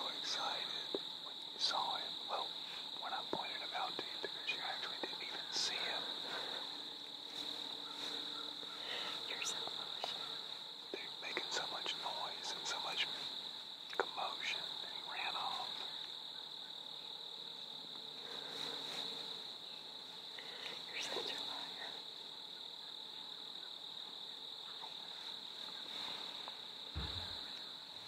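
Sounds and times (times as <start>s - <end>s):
high-pitched insect chorus: 0.0s - 28.0s
low rustle: 18.2s - 20.2s, 25.1s - 28.0s.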